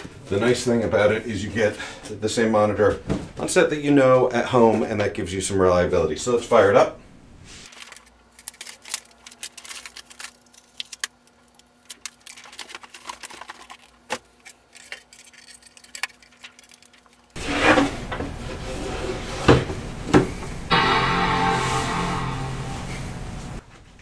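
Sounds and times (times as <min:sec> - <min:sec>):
handling clicks and clinks: 0:11.9 - 0:17.4
loud music: 0:20.7 - 0:23.6.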